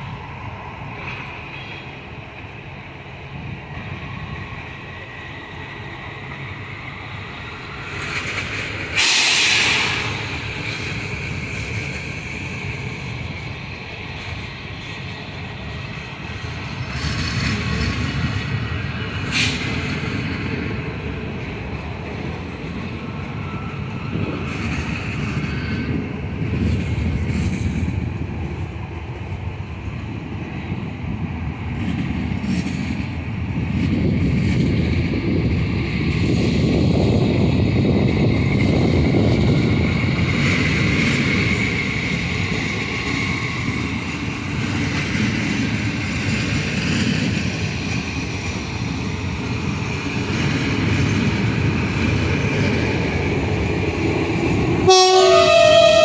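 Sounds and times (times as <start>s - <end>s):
train wheels rumbling on rails: 0.0s - 56.0s
loud hiss: 9.0s - 10.3s.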